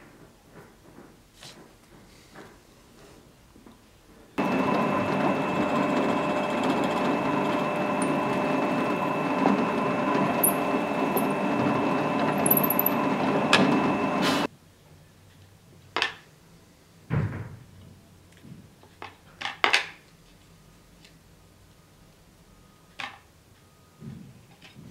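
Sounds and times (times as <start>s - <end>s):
drill press whining: 4.4s - 14.5s.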